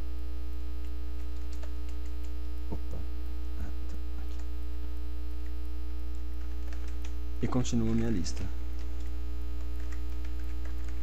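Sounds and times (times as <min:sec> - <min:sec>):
electrical mains hum: 0:00.0 - 0:11.0
faint keyboard clicks: 0:00.8 - 0:03.0, 0:03.8 - 0:04.5, 0:05.4 - 0:11.0.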